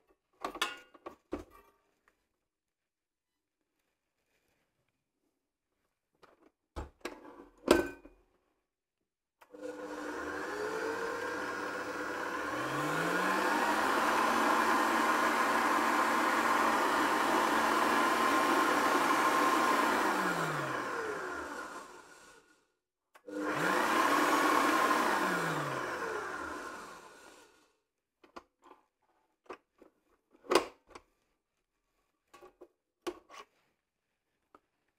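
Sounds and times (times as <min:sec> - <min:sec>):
stand mixer motor running: 0:09.6 - 0:22.4, 0:23.3 - 0:27.5.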